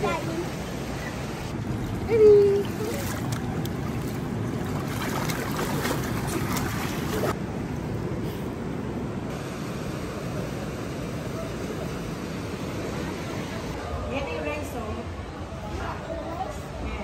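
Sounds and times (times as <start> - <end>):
water splashing in a pool: 0.0 - 7.4.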